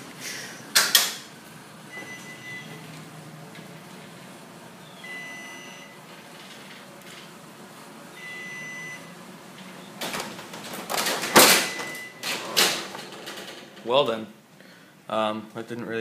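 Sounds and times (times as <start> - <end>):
garage door opener hum: 0.0 - 14.1
loud clattering: 10.0 - 14.0.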